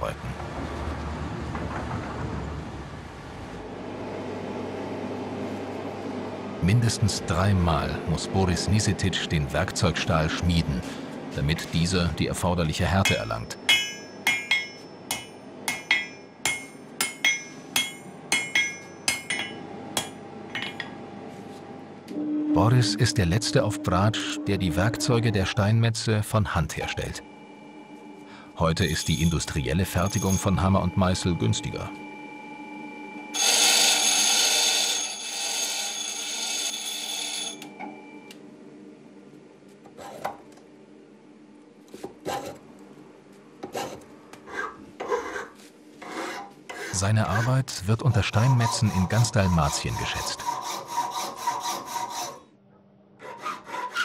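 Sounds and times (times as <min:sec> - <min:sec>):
hammer ringing on steel: 0:13.0 - 0:20.9, 0:28.8 - 0:31.0
harsh metal rasping: 0:28.8 - 0:31.2, 0:33.4 - 0:37.6, 0:43.7 - 0:52.4, 0:53.2 - 0:54.0.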